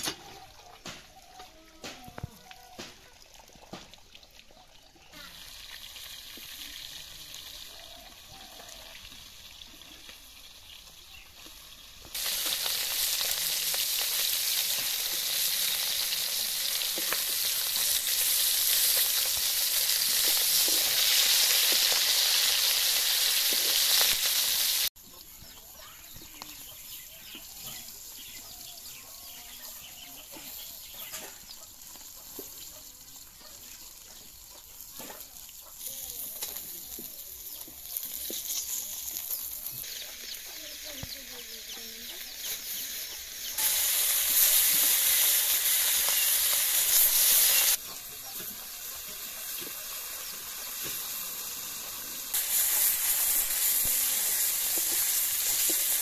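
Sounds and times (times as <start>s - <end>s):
fish sizzling in oil: 0.0s - 56.0s.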